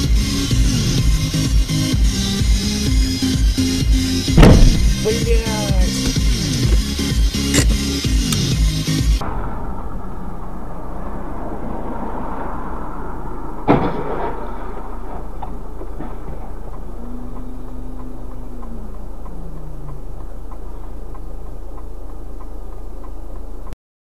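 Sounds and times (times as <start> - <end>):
car road and engine noise: 0.0 - 23.8
loud collision bang: 4.3 - 6.8, 9.2 - 12.8, 13.4 - 15.1
faint regular ticking: 15.6 - 23.8
low tone sliding down in pitch: 16.5 - 20.8.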